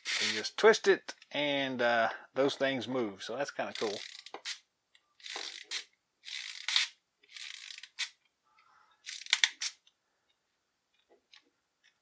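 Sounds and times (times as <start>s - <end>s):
clockwork motor ratcheting: 3.7s - 4.6s, 5.2s - 8.1s, 9.0s - 9.8s.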